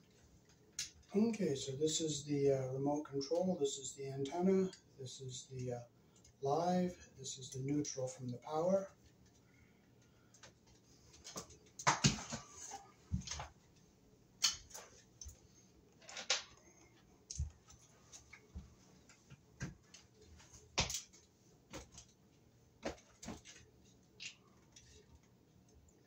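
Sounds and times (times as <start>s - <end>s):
clicks and knocks of fan parts: 14.4s - 16.6s, 20.8s - 22.2s.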